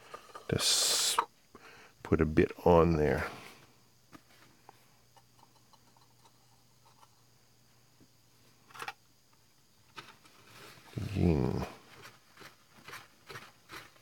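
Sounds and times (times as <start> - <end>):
small handling ticks: 3.1 - 7.4, 8.0 - 13.8.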